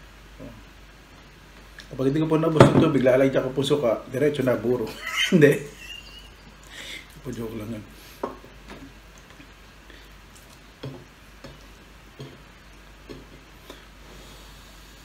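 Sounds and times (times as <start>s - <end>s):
man chewing food: 8.4s - 14.7s.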